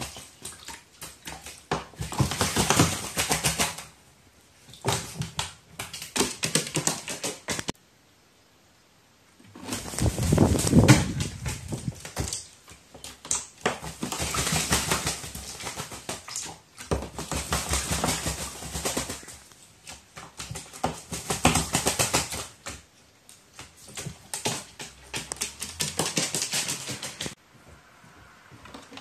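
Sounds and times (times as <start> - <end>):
bird splashing in water: 0.0 - 4.0, 9.6 - 22.9.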